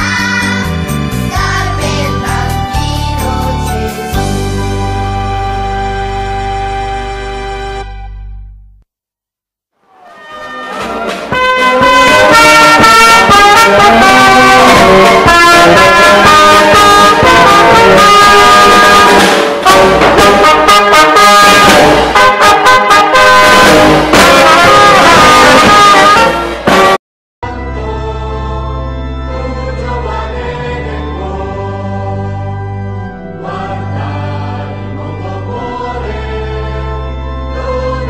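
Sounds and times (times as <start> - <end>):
brass band playing: 3.3 - 8.4, 10.0 - 28.1, 29.0 - 37.9
snare drum: 10.4 - 27.0.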